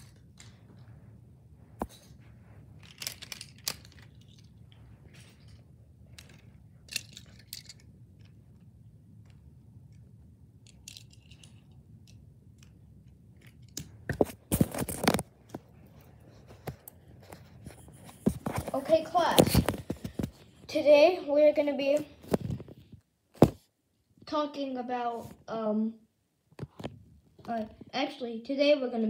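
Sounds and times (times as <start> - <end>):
toy cars clicking and rustling: 0.0 - 0.8, 2.8 - 15.6.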